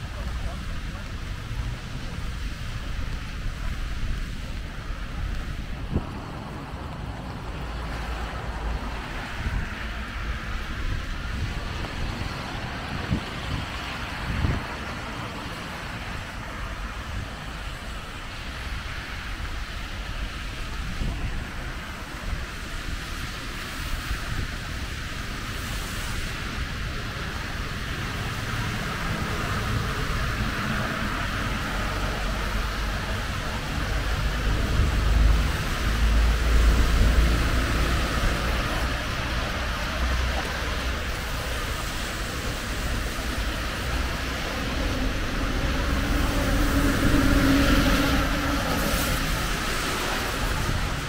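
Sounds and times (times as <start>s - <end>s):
heavy rain hissing: 0.0s - 51.0s
wind buffeting microphone: 0.0s - 51.0s.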